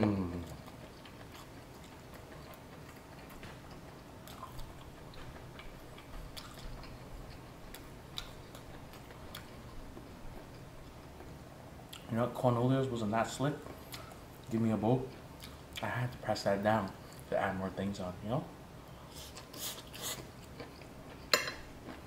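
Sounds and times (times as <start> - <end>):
person chewing noodles: 0.0 - 11.3, 15.1 - 15.9, 18.9 - 22.0.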